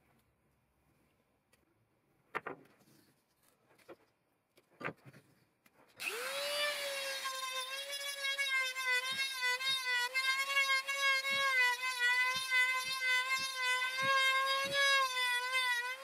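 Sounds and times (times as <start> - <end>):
power tool motor whine: 6.0 - 16.0.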